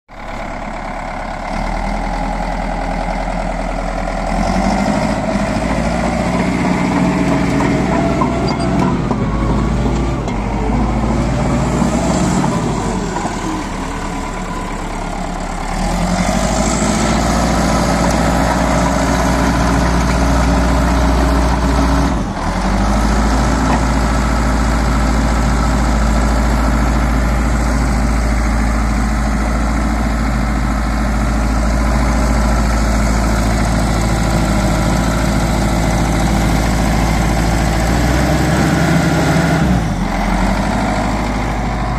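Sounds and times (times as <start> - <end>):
bulldozer diesel engine running: 0.1 - 41.9.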